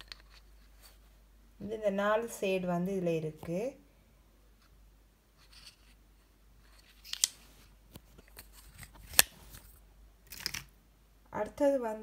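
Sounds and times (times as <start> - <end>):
plastic tubes clicking together: 6.8 - 7.4.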